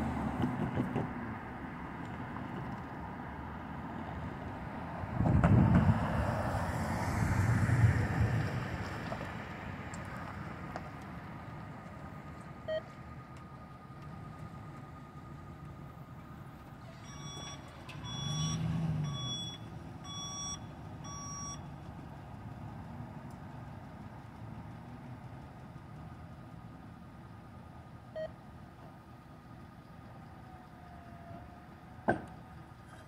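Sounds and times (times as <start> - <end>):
pickup truck driving past: 0.0 - 27.3
truck engine: 0.0 - 33.0
backup alarm beeping: 12.6 - 12.9, 17.0 - 21.7.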